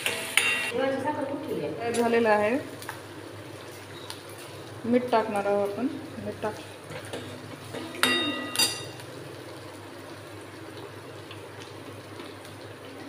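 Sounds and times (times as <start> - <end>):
steel spoon clinking on pan: 8.0 - 9.0.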